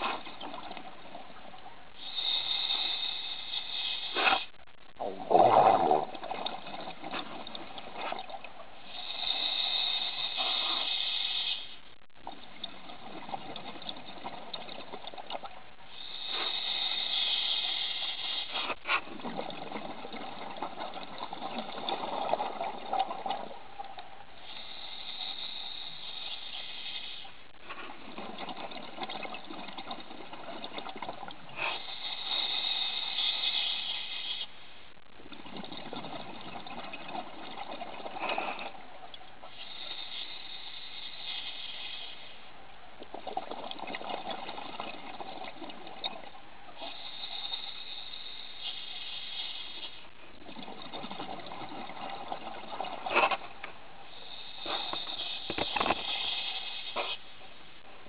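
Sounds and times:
bubbling exhaled air: 0.0 - 23.8
diver breathing through regulator: 8.9 - 11.9, 15.9 - 19.1, 31.5 - 34.5, 39.5 - 42.5, 54.1 - 57.3.

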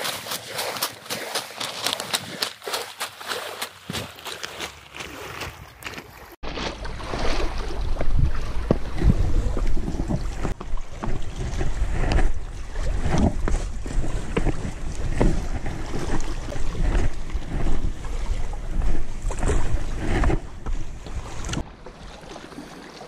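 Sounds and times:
shoes and hands scuffing rock: 0.0 - 6.3
wind buffeting microphone: 7.4 - 21.7.

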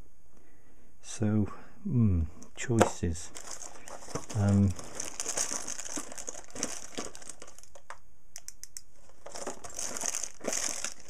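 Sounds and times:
plastic bags crinkling: 3.2 - 8.0, 9.0 - 11.0.

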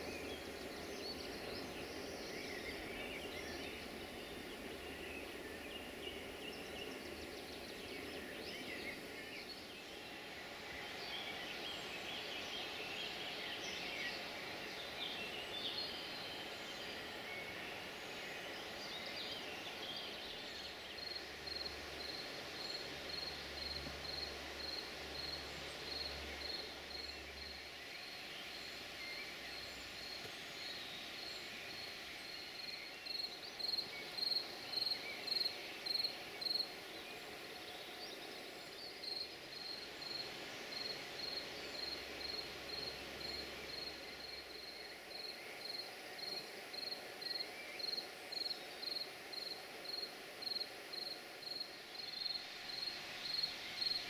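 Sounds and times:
cricket chirping: 21.0 - 37.4, 38.2 - 54.0.

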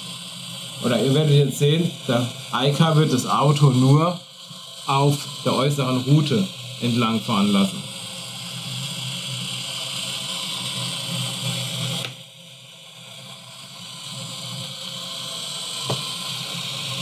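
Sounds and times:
steady hiss: 0.0 - 12.4.

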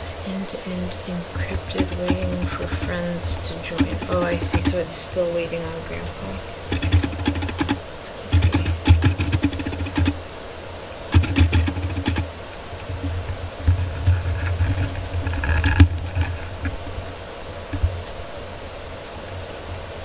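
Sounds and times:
keyboard key clicks: 6.7 - 10.2, 11.1 - 12.3.

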